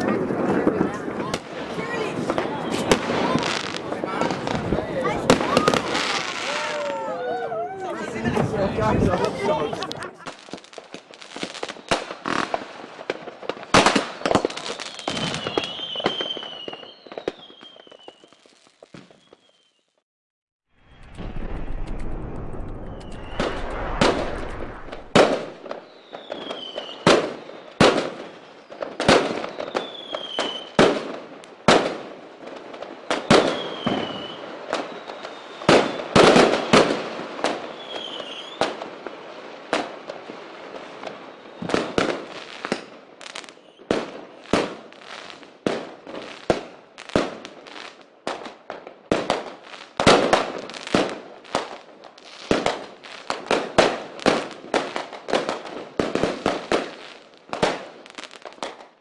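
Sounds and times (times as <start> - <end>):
firework bangs: 0.0 - 19.5, 20.8 - 58.9
falling firework whistles: 2.2 - 3.8, 5.3 - 7.8, 13.9 - 20.0, 20.8 - 30.8, 33.1 - 38.8, 41.0 - 43.9.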